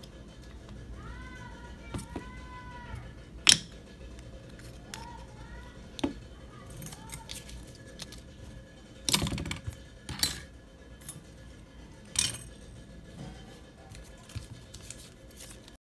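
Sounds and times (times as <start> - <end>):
faint background music: 0.0 - 15.8
metal tools clattering on desk: 9.1 - 11.2.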